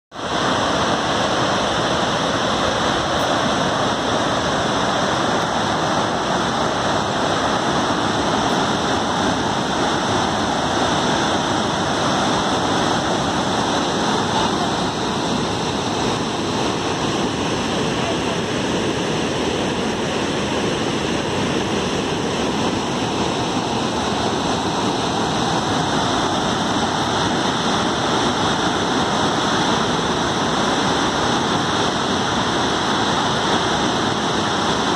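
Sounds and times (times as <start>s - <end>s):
waterfall rushing: 0.2s - 34.9s.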